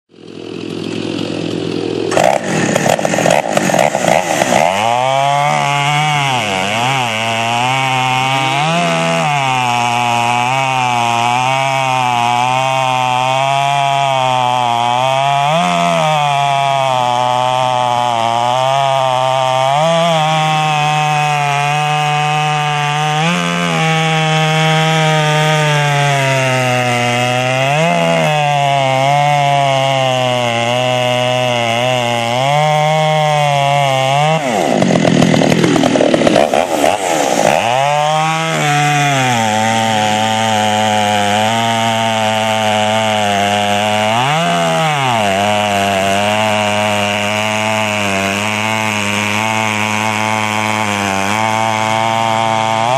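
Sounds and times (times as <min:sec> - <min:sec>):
chainsaw cutting log: 0:00.1 - 0:52.9.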